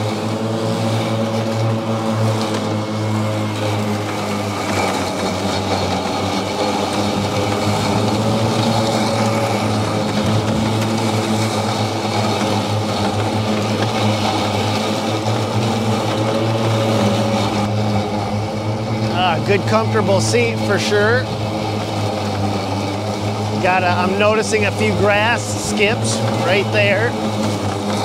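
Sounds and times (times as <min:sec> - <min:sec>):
electric mower motor hum: 0:00.0 - 0:28.0.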